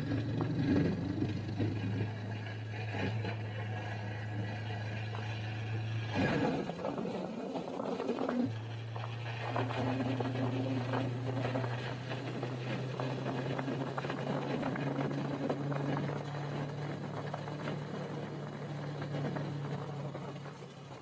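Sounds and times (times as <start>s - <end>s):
motorcycle engine running: 0.0s - 21.0s
wind and road noise: 0.0s - 21.0s.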